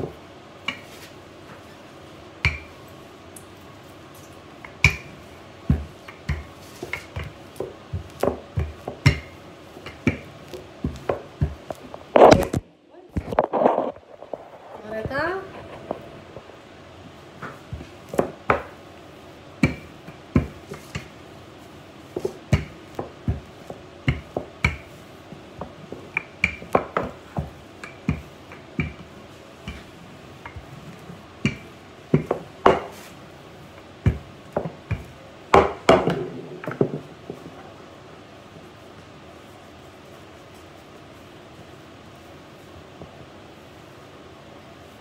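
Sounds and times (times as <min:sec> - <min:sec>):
rolling pin knocking on countertop: 0:05.7 - 0:12.6, 0:17.4 - 0:18.8, 0:19.6 - 0:21.1, 0:22.2 - 0:25.0, 0:25.6 - 0:29.9, 0:31.4 - 0:33.1, 0:34.0 - 0:37.5.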